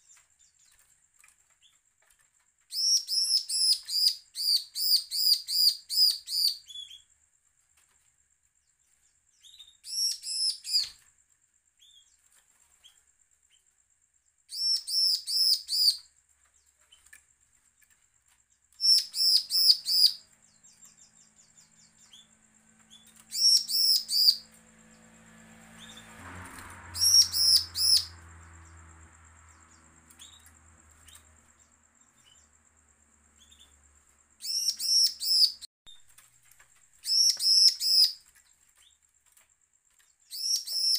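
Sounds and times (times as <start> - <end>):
bird singing rapid high notes: 22.9 - 24.6, 26.9 - 28.8.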